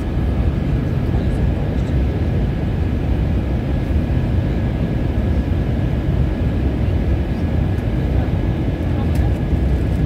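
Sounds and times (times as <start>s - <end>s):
jet cabin roar: 0.0s - 10.0s.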